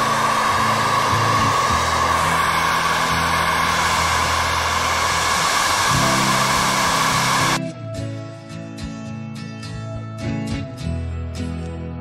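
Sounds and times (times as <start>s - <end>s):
hair dryer running: 0.0s - 7.6s
background music with low bass: 6.2s - 12.0s.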